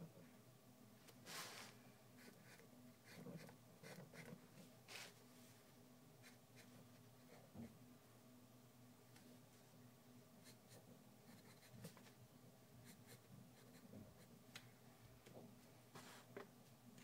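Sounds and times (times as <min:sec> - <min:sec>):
low steady hum: 0:00.0 - 0:17.0
pencil scratching on paper: 0:02.2 - 0:04.4, 0:10.4 - 0:12.0.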